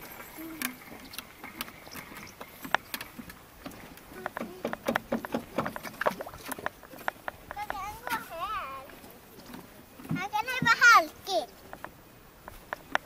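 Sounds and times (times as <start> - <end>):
footsteps on wooden planks: 0.0 - 13.0.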